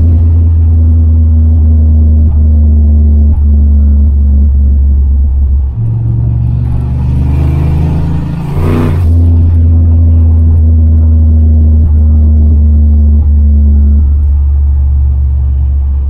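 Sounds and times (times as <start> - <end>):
car engine droning: 0.0 - 16.0
engine revving: 0.0 - 16.0
turbo whoosh: 5.6 - 9.6.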